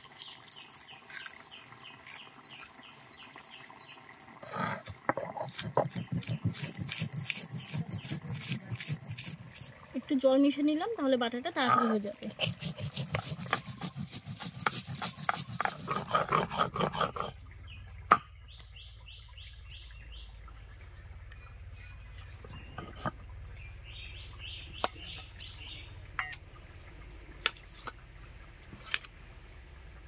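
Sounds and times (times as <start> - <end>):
bird chirping: 0.0 - 4.0, 17.6 - 26.4
grinding stone scraping on stone slab: 4.4 - 9.7, 11.6 - 17.3, 22.4 - 23.2.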